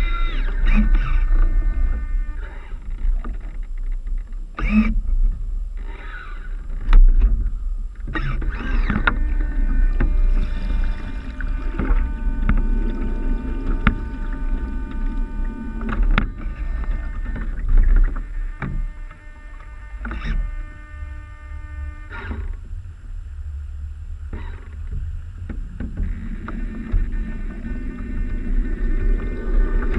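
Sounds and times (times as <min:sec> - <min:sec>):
faint whine: 0:00.0 - 0:29.9
low rumble: 0:00.0 - 0:29.9
water splashing against hulls: 0:00.0 - 0:29.9
waves knocking on hull: 0:06.6 - 0:21.2, 0:24.3 - 0:29.9.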